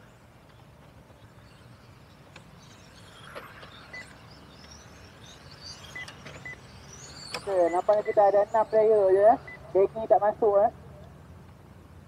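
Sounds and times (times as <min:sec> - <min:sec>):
rc car motors whining: 0:01.2 - 0:09.6.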